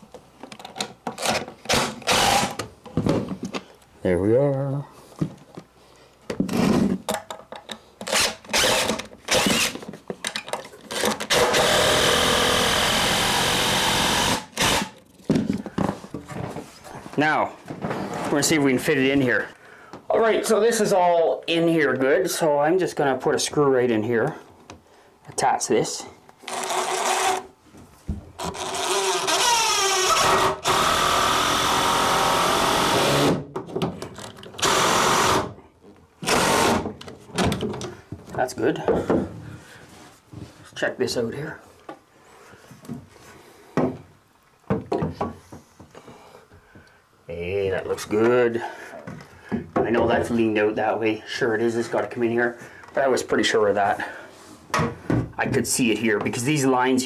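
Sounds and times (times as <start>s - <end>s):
cordless drill running: 1.7s - 2.6s, 8.1s - 9.8s, 10.9s - 14.9s, 26.5s - 27.4s, 28.5s - 33.4s, 34.6s - 35.5s, 36.2s - 36.8s.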